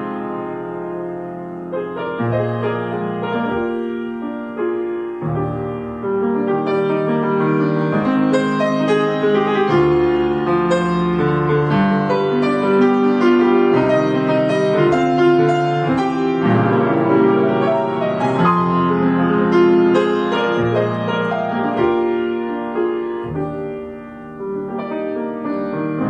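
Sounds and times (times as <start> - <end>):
solo grand piano chords: 0.0 - 26.0.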